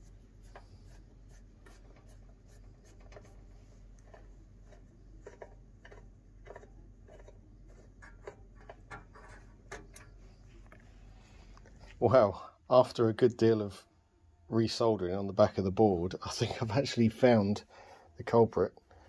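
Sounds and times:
screw scraping in sheet metal: 6.5 - 10.2.

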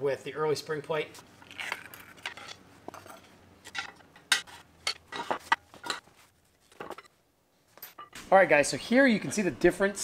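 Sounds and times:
metal parts clinking and clanking: 1.5 - 6.1, 6.7 - 7.1.

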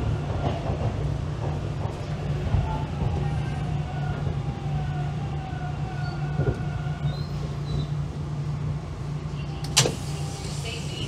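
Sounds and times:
train motor whine: 9.3 - 11.0.

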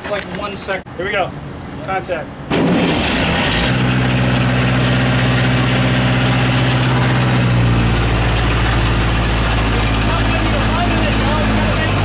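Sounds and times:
boat engine running: 2.5 - 12.0.

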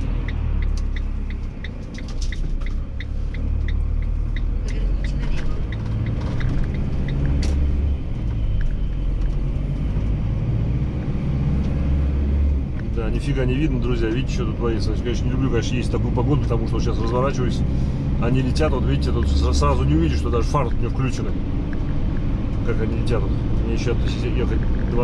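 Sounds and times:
turn signal ticking: 0.0 - 10.2, 15.9 - 25.0
vehicle engine and road rumble: 0.0 - 25.0.

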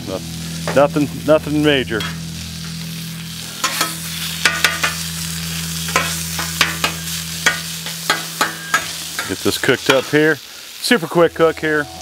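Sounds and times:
low hum: 0.0 - 9.4
meat sizzling on a griddle: 0.0 - 12.0
metal spatula clacking and scraping: 3.6 - 5.0, 5.9 - 10.2.

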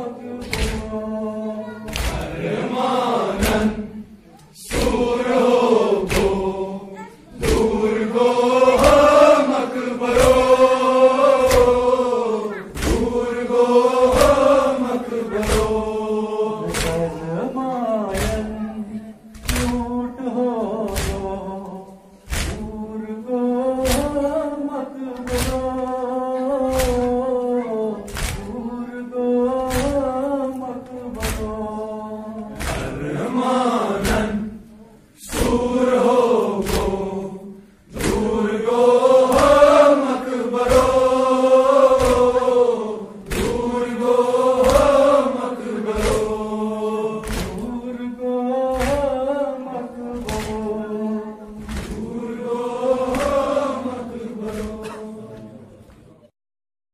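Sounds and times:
men chanting a lament: 0.0 - 55.8
hands slapping chests: 0.4 - 1.0, 1.9 - 2.6, 3.3 - 3.8, 4.7 - 6.6, 7.4 - 7.9, 8.6 - 9.5, 10.1 - 17.2, 18.1 - 18.6, 19.3 - 19.9, 20.9 - 21.5, 22.2 - 22.8, 23.8 - 24.4, 25.2 - 26.0, 26.6 - 27.2, 28.1 - 28.6, 29.6 - 30.2, 30.9 - 31.6, 32.5 - 33.3, 33.9 - 34.4, 35.2 - 37.2, 37.9 - 46.6, 47.2 - 47.8, 48.6 - 49.3, 50.1 - 50.8, 51.6 - 55.0.

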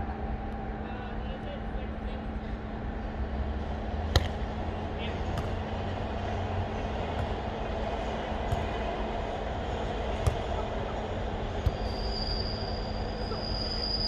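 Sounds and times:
rumbling background: 0.0 - 13.3
faint hum: 0.0 - 14.0
volleyball slaps: 4.1 - 4.6, 5.2 - 6.0, 6.8 - 9.3, 10.0 - 10.8, 11.5 - 11.9.

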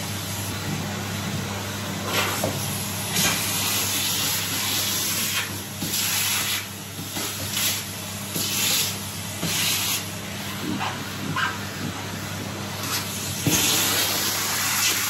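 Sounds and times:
vacuum cleaner running: 0.0 - 15.0
vacuum suction hiss: 11.9 - 15.0.

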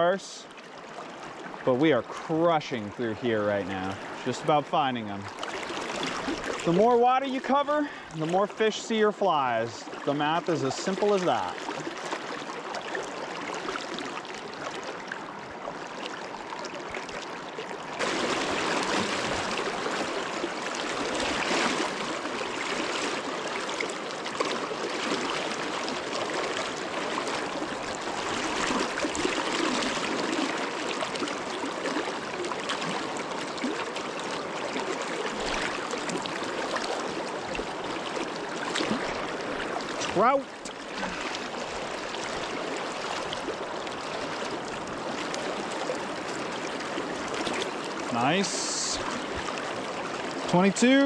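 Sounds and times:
river water rushing: 0.0 - 51.0.

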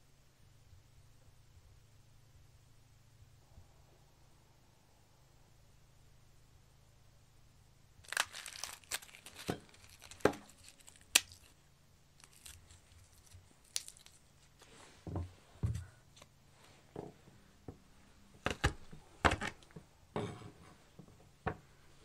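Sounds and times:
garlic skins crackling and tearing: 8.0 - 11.6, 12.2 - 14.7
garlic snapping: 8.0 - 11.6, 12.2 - 14.3
soft thumps: 14.9 - 16.0.

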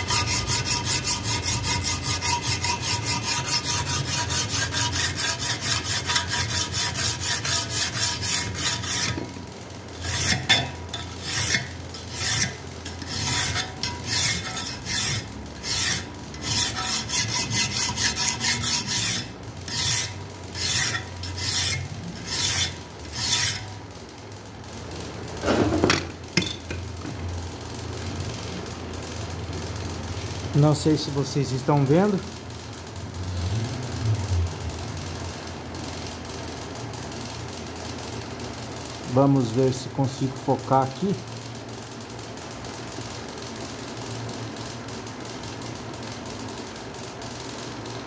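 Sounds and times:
file rasping on steel blade: 0.0 - 9.4, 10.0 - 23.7.

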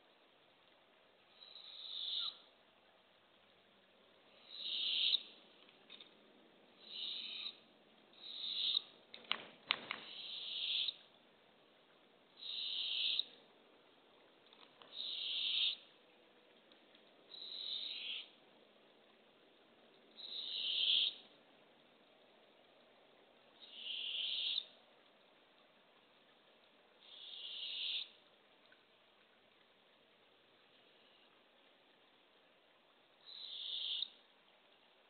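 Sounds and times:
owlet hissing begging call: 1.4 - 2.4, 4.3 - 5.3, 6.8 - 7.6, 8.2 - 8.9, 10.1 - 11.0, 12.4 - 13.3, 14.9 - 15.8, 17.3 - 18.3, 20.2 - 21.2, 23.6 - 24.7, 27.0 - 28.1, 33.3 - 34.2.

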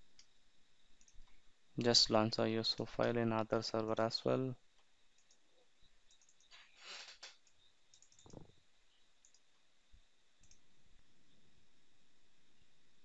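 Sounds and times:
faint low hum: 0.0 - 13.0
faint mouse clicks: 1.0 - 2.0, 4.8 - 5.4, 6.1 - 8.5, 9.2 - 9.5, 10.4 - 10.6.

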